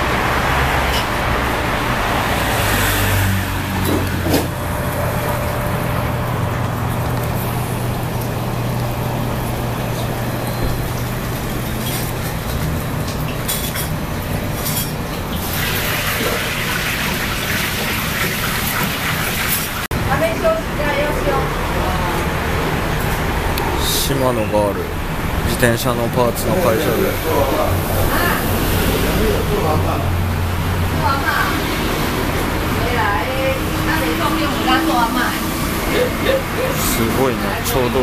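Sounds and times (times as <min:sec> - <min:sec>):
road traffic hum: 0:00.0 - 0:38.0
dishes and utensils clinking: 0:11.7 - 0:15.2.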